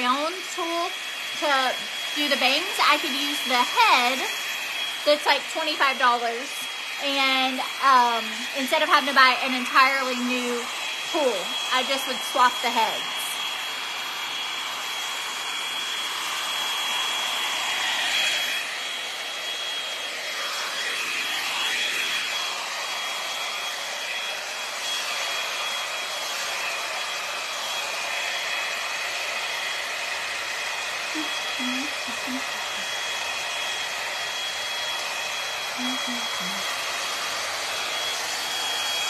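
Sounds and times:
hot air brush blowing: 0.0s - 39.0s
high motor whine: 29.4s - 39.0s.

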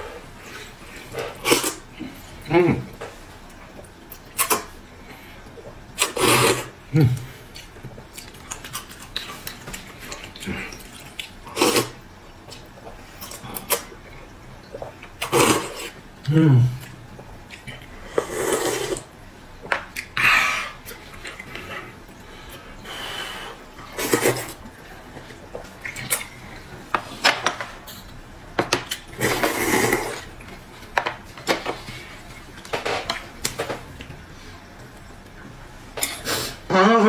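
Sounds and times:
person slurping noodles: 1.1s - 1.8s, 6.0s - 7.2s, 11.5s - 12.0s, 15.2s - 16.8s, 18.1s - 19.1s, 23.0s - 24.6s, 29.1s - 30.3s.

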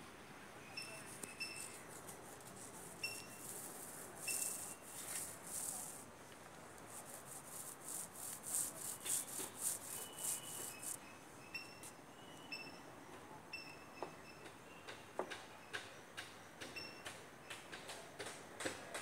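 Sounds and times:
paint roller swishing: 1.0s - 6.1s, 6.7s - 11.0s.

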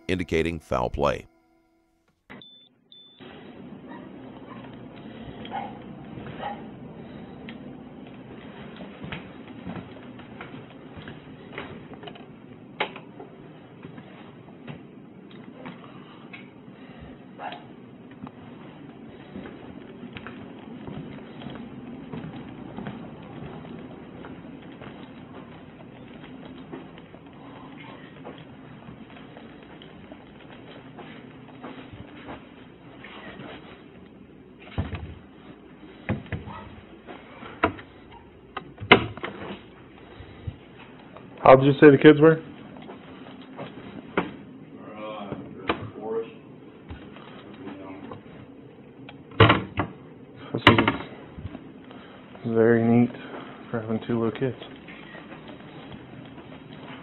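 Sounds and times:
knocks and clunks of handling: 50.6s - 51.6s.

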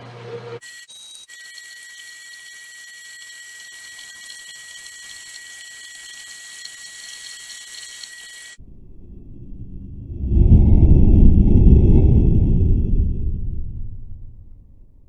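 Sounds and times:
band saw cutting metal: 0.6s - 8.6s.

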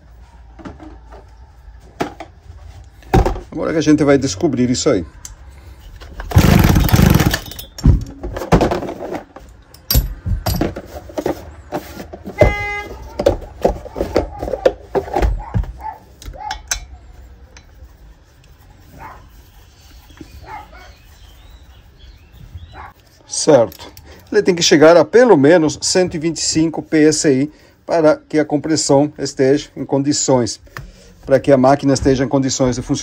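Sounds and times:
tools and parts clicking and rattling: 5.9s - 12.4s, 13.1s - 17.7s, 23.5s - 24.4s.

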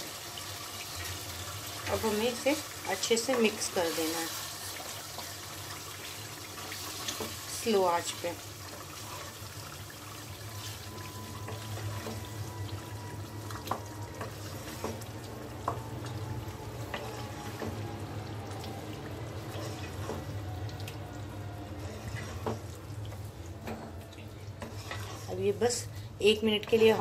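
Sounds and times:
sizzling simmer: 0.0s - 27.0s
spoon stirring thick sauce: 21.7s - 23.4s, 24.0s - 25.6s.

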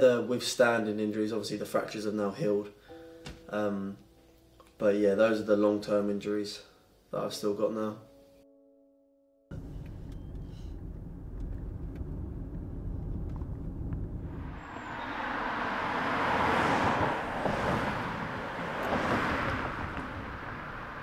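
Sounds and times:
low steady rumble: 9.5s - 15.2s
cars passing on road: 9.5s - 21.0s.

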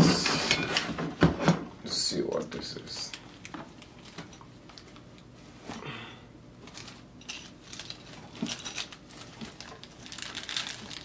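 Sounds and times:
metal accessories clinking: 6.7s - 11.0s.

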